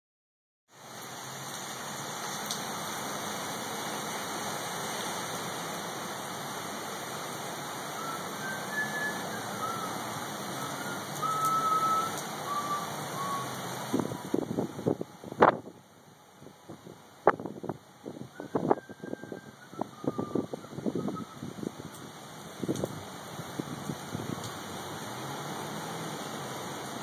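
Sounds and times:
heavy rain pouring: 0:00.7 - 0:27.0
high whistling tones: 0:08.0 - 0:13.6, 0:18.3 - 0:21.5.

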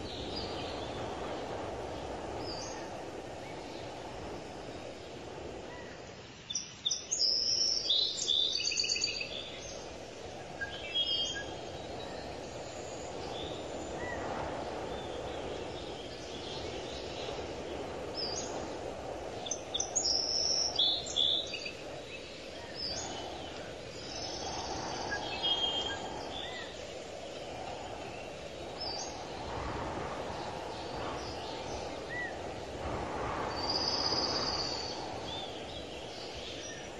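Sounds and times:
birds chirping: 0:19.4 - 0:36.9.

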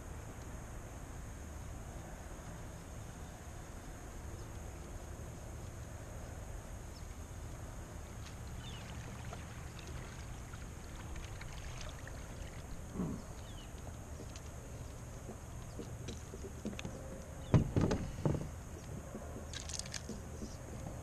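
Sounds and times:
water splashing and dripping: 0:08.2 - 0:12.9, 0:19.5 - 0:20.2.

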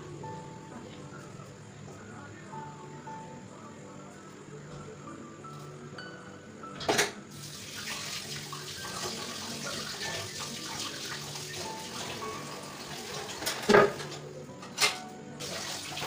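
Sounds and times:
kitchen tap running water: 0:07.3 - 0:14.2, 0:15.4 - 0:16.0.

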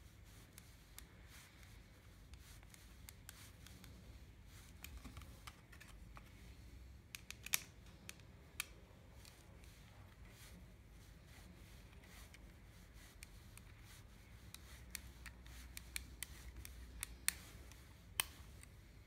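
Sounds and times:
sharp plastic clicks: 0:07.1 - 0:08.8.

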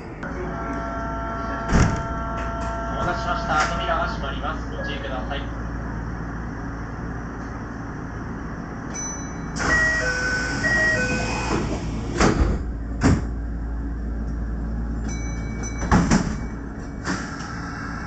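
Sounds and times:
electric train humming: 0:00.0 - 0:18.0
train doors closing knocks: 0:01.6 - 0:03.8, 0:10.8 - 0:13.4, 0:15.6 - 0:17.2.

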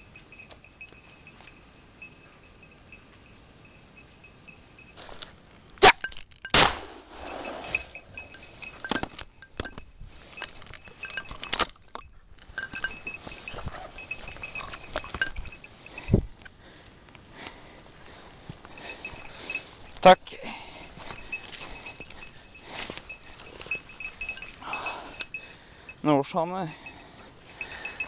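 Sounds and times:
light clinking: 0:00.0 - 0:28.0
shotgun shots: 0:05.8 - 0:07.5
footsteps through brush: 0:12.4 - 0:24.6.

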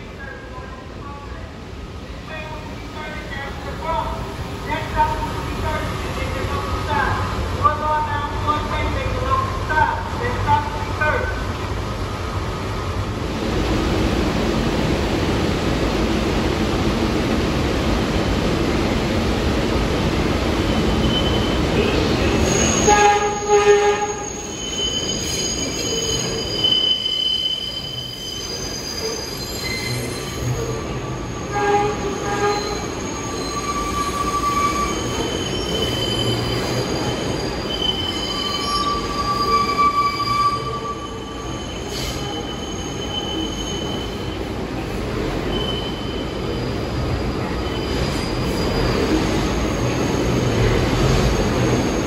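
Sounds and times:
train wheels squealing on rails: 0:20.6 - 0:52.0.

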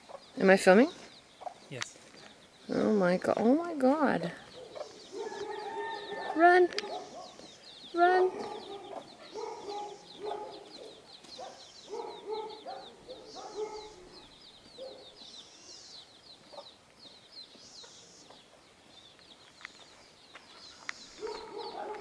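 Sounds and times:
chicks peeping: 0:00.0 - 0:00.4, 0:01.0 - 0:02.9, 0:04.4 - 0:22.0
chicken clucking: 0:08.4 - 0:10.8.

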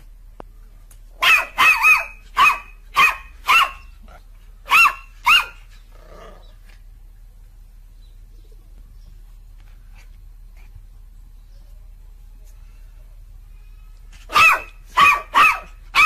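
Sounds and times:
dog barking: 0:01.2 - 0:03.9, 0:04.7 - 0:05.6, 0:14.3 - 0:16.0.

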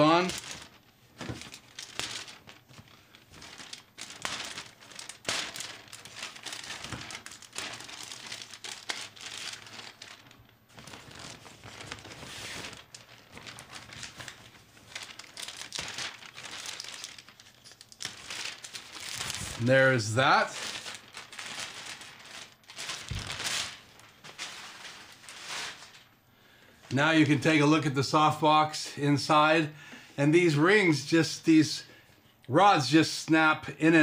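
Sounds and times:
fabric rustling and crinkling: 0:00.0 - 0:26.2.

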